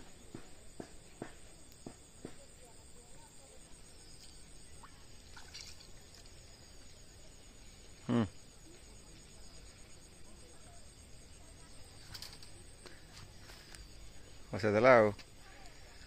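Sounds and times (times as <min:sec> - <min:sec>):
insects buzzing: 0:00.0 - 0:16.0.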